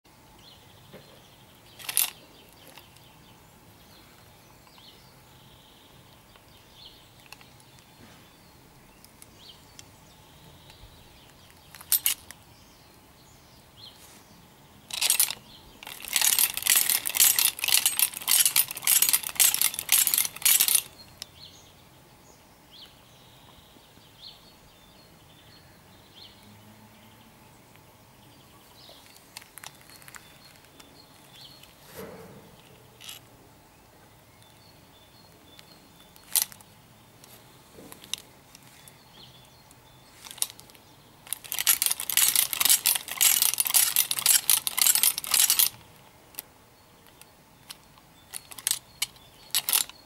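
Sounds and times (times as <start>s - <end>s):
metal blades clinking and scraping: 14.9s - 21.0s, 41.3s - 45.8s.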